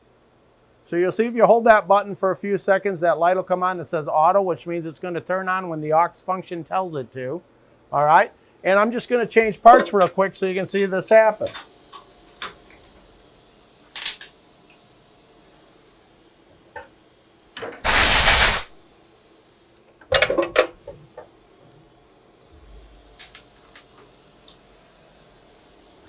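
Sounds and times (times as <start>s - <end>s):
compressed air hiss: 17.8s - 18.8s.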